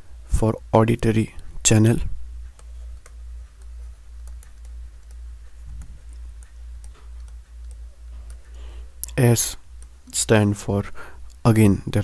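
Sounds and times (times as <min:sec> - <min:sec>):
low electrical hum: 0:00.0 - 0:12.0
stylus tapping on tablet: 0:02.4 - 0:08.6.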